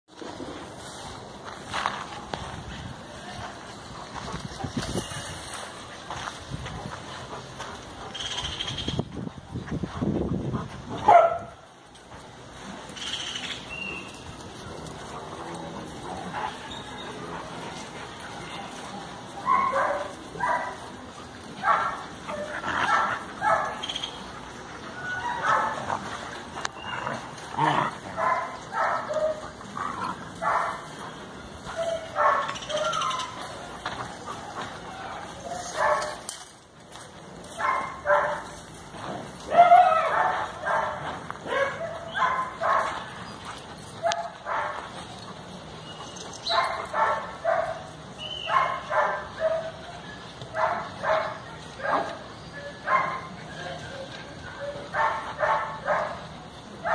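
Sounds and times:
dogs barking: 10.6s - 36.3s, 37.5s - 56.9s
dog barking: 11.0s - 11.6s, 31.8s - 33.2s, 46.5s - 47.9s, 48.5s - 49.8s, 50.6s - 53.3s, 54.6s - 56.2s.

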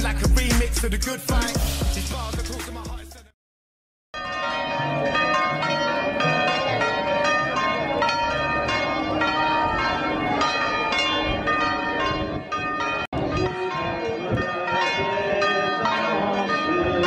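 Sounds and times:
church bells pealing: 4.2s - 17.0s.

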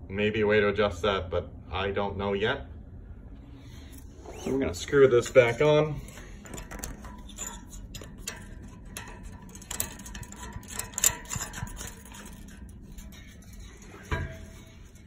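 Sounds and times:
valve controller clicking and scraping: 3.9s - 15.0s.

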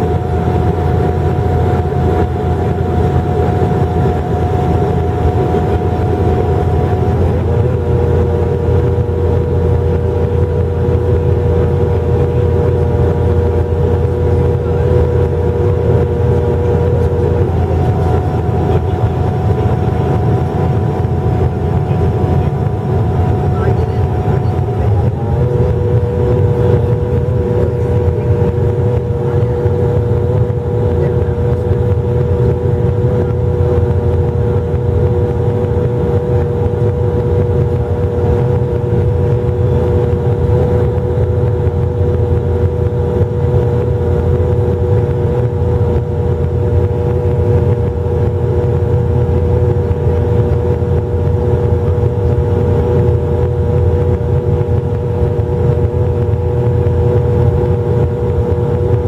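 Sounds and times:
constant hum tone: 0.0s - 59.0s
propeller engines droning: 0.0s - 59.0s.

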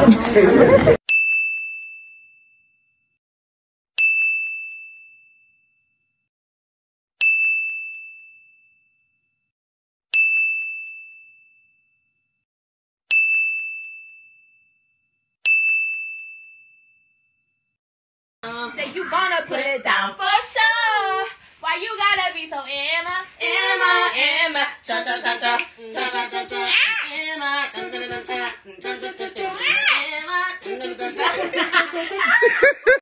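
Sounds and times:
bright bell-like ding: 1.1s - 2.7s, 4.0s - 5.5s, 7.2s - 8.8s, 10.1s - 11.7s, 13.1s - 14.7s, 15.4s - 17.5s.

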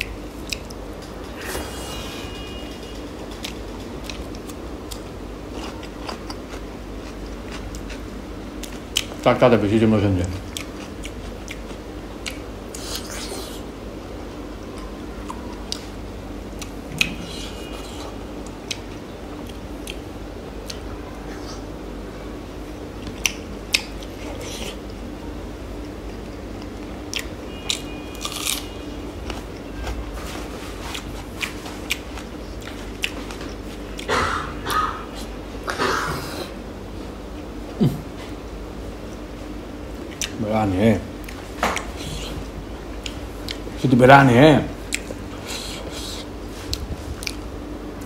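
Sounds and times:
chewing food: 0.0s - 0.8s, 3.3s - 9.2s, 10.2s - 13.7s, 16.5s - 21.7s, 25.8s - 29.7s, 30.8s - 35.3s, 40.0s - 40.4s, 41.2s - 43.8s, 44.9s - 47.4s
crunchy bites and chewing: 26.3s - 29.8s
wet mouth clicks and crunches: 44.9s - 47.4s.

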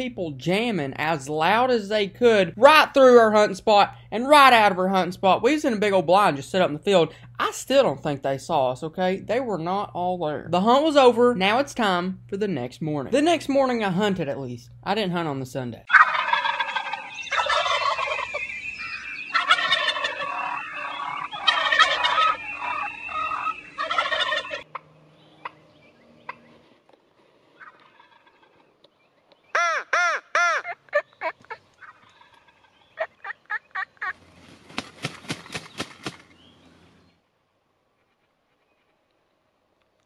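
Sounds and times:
turkey yelping notes: 15.9s - 25.6s, 27.6s - 28.6s, 29.5s - 34.2s
wild turkeys gobbling: 15.9s - 25.6s, 27.5s - 28.9s, 29.5s - 34.3s.

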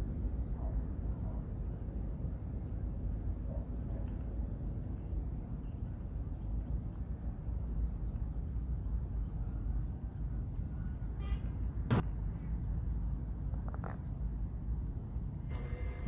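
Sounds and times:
sharp click: 11.9s - 12.1s.

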